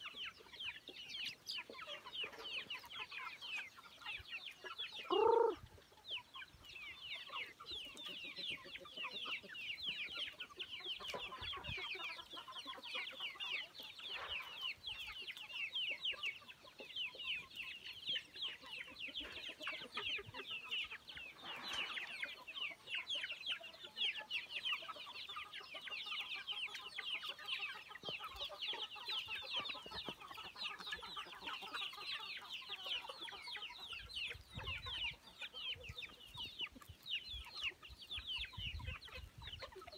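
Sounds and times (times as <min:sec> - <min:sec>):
chicks peeping: 0:00.0 - 0:39.9
chicken squawk: 0:05.0 - 0:05.7.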